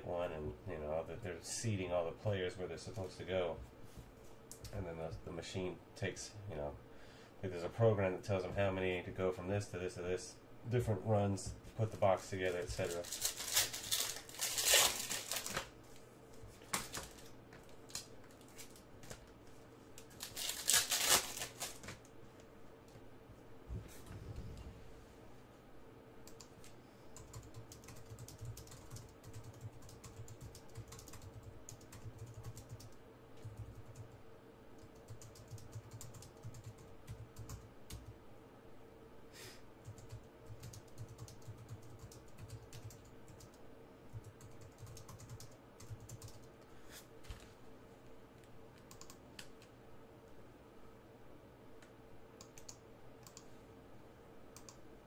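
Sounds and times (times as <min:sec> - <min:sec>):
faint electrical hum: 0:00.0 - 0:55.0
keyboard typing: 0:26.3 - 0:34.1, 0:34.8 - 0:38.2, 0:39.8 - 0:46.5, 0:48.8 - 0:49.6.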